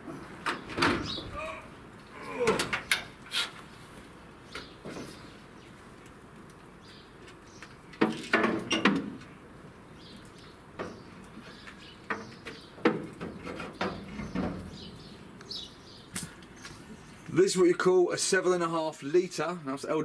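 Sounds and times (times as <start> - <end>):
metal knocks and scrapes: 12.1 - 14.9.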